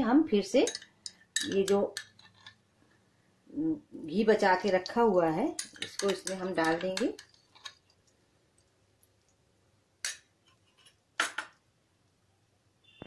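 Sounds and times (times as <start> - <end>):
glass bowl clinking on steel: 0.6 - 2.1.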